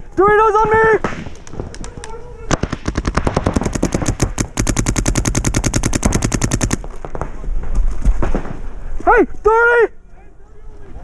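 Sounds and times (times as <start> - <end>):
paintball marker rapid fire: 0.6 - 7.3.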